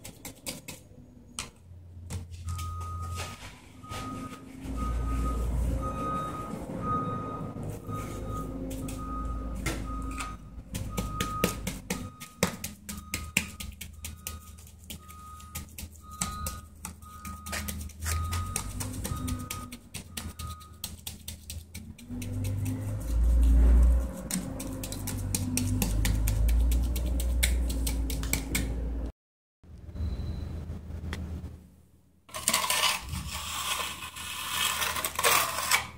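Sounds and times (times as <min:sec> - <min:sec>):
reversing alarm beeping: 0:02.4 - 0:20.8.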